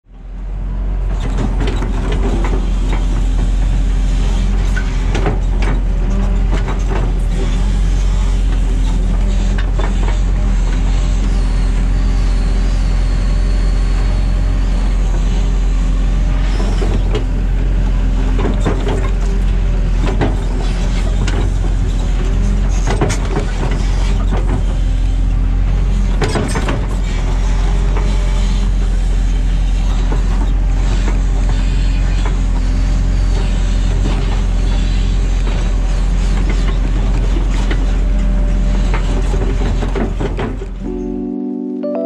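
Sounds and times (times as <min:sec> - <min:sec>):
excavator diesel engine running: 0:00.1 - 0:41.1.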